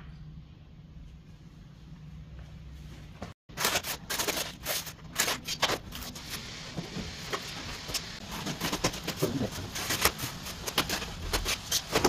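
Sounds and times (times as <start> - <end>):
cardboard and panels being handled: 3.6 - 12.0.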